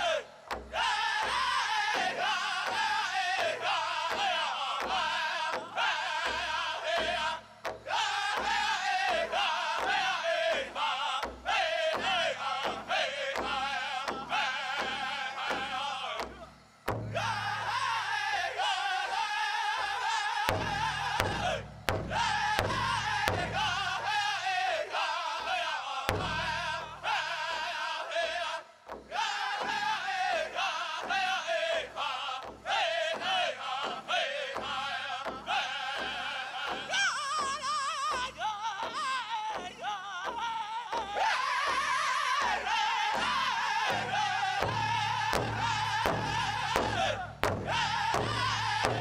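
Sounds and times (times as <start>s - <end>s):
high-pitched group singing: 0.0s - 16.5s, 17.1s - 49.0s
big drum steady beat: 0.0s - 49.0s.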